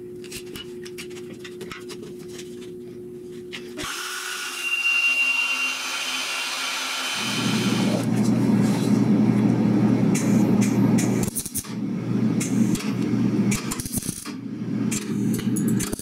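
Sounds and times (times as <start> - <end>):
low machine hum: 0.0 - 3.8, 7.2 - 16.0
bandsaw cutting steel: 3.8 - 8.0.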